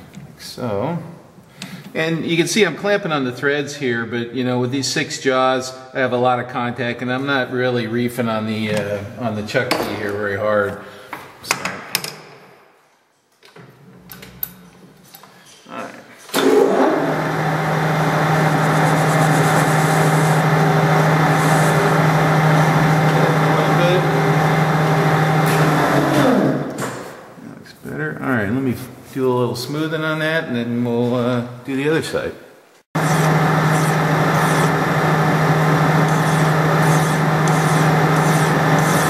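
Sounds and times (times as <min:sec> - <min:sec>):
lathe tool cutting steel: 0:16.4 - 0:26.6, 0:33.0 - 0:39.0
metal lathe humming: 0:16.4 - 0:26.7, 0:33.0 - 0:39.0.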